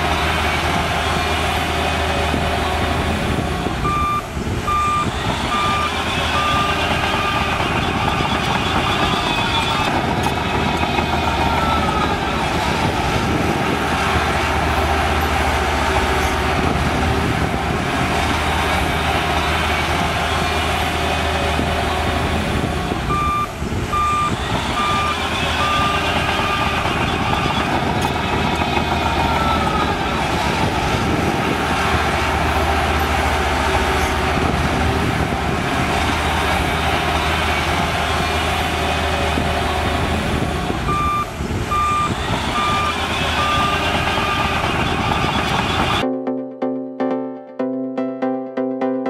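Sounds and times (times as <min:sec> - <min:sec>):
bulldozer engine under load: 0:00.0 - 0:46.0
reversing alarm beeps: 0:03.8 - 0:12.3, 0:23.1 - 0:30.7, 0:40.9 - 0:46.0.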